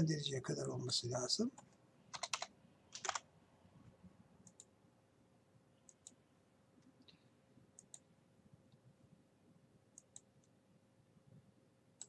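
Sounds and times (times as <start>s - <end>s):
computer mouse clicks: 1.6s - 3.2s, 4.4s - 4.7s, 5.9s - 6.2s, 7.8s - 8.1s, 10.0s - 10.6s.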